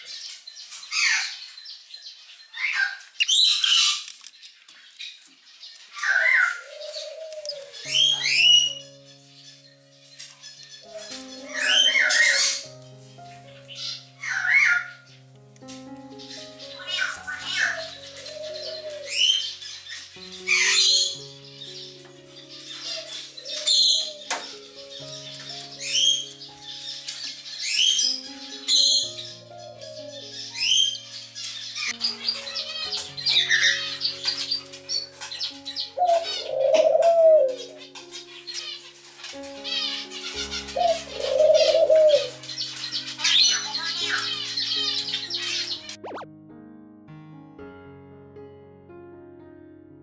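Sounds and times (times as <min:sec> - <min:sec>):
cockatiel calling: 0:06.0 - 0:08.8, 0:10.7 - 0:12.7
background music held notes: 0:06.0 - 0:50.0.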